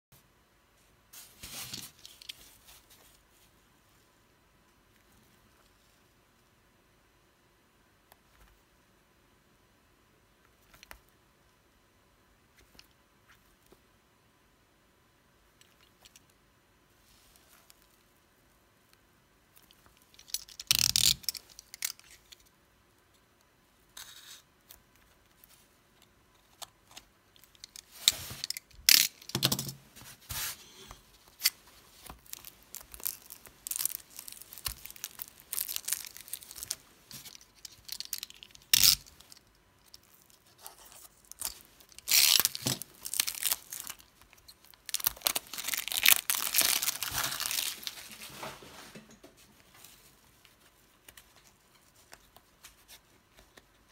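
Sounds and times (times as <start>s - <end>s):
plastic film crinkling and tearing: 31.2s - 48.4s.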